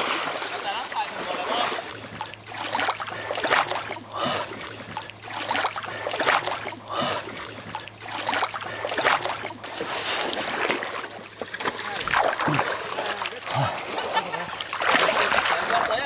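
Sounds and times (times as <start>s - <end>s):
splashing in shallow water: 0.0s - 16.0s.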